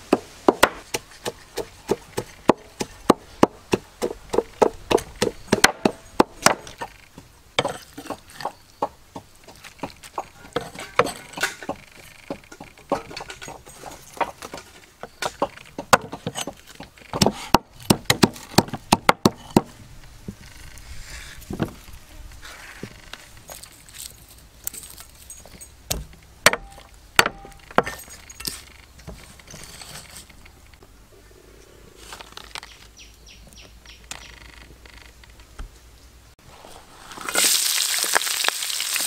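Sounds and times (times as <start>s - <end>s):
blade chopping on wood: 0.0s - 6.9s, 15.2s - 19.8s, 25.9s - 28.1s.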